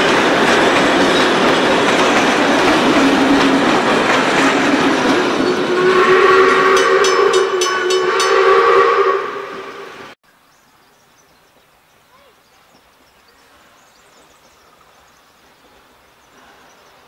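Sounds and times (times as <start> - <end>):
train carriages rolling on rails: 0.0 - 10.2
steam locomotive whistle: 4.9 - 10.2.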